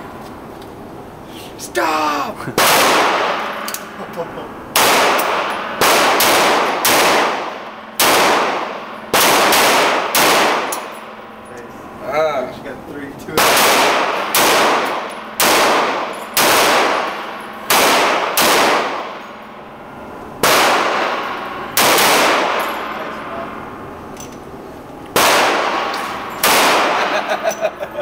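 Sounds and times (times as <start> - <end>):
handgun shots echoing: 2.6 - 4.0, 4.7 - 11.2, 13.4 - 19.4, 20.4 - 23.1, 25.1 - 27.5.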